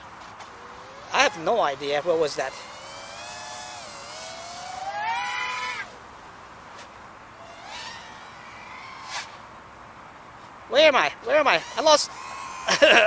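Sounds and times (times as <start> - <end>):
drone motors whining: 0.0 - 6.1, 7.2 - 9.6, 11.2 - 13.0.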